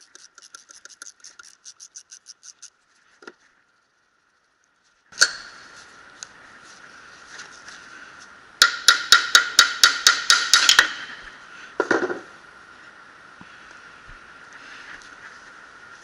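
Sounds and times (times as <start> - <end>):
hammer striking metal: 8.6 - 11.2.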